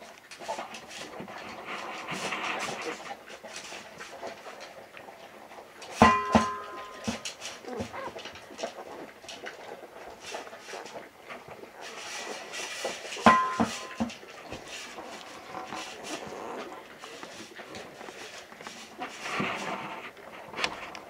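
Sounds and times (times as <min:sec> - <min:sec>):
rustling: 0:00.0 - 0:21.0
puppies snuffling: 0:00.3 - 0:21.0
sharp knock with ringing: 0:06.0 - 0:06.8.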